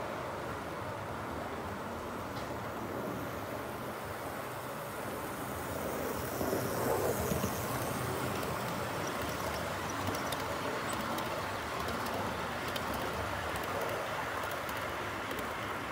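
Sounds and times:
model train rolling on track: 2.2s - 15.9s
faint clicks: 7.3s - 15.8s.

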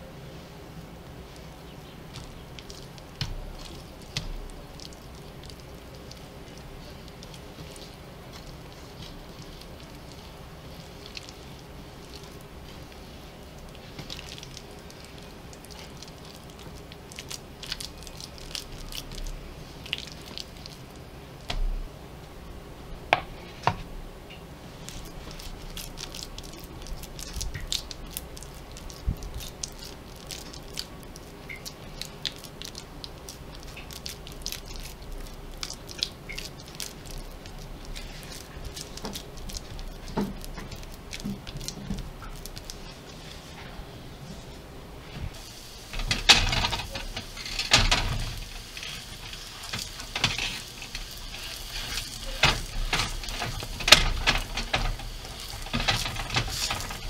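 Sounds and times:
steady low hum: 0.0s - 57.0s
dough squishing on board: 1.1s - 22.4s, 24.6s - 45.4s.

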